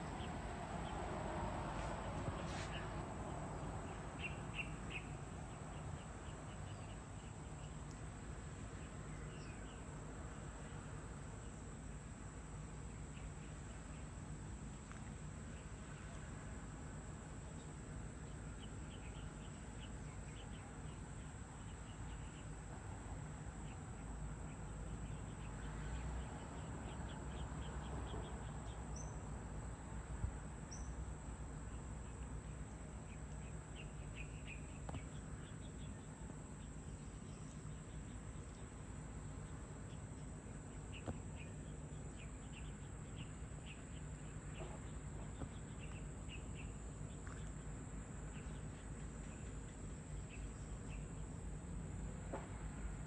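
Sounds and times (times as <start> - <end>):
insect drone: 0.0 - 53.0
small birds chirping: 3.6 - 10.8, 17.4 - 22.7, 23.5 - 29.4, 30.7 - 51.4.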